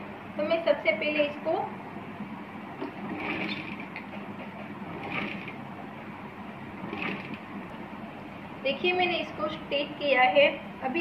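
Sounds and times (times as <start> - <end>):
sewing machine whirring: 2.8 - 5.7, 6.8 - 7.5.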